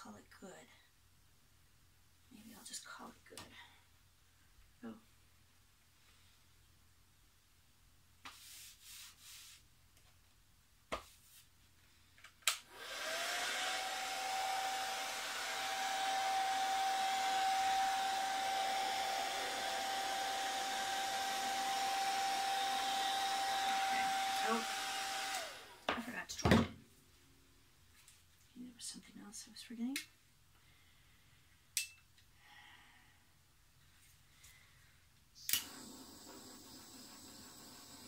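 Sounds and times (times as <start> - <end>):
hair dryer running: 12.5 - 26.0, 35.5 - 38.0.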